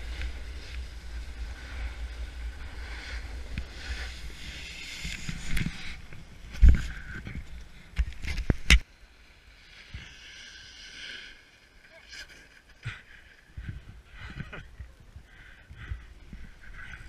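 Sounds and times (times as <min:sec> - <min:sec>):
snowboard scraping over snow: 0:00.0 - 0:08.8.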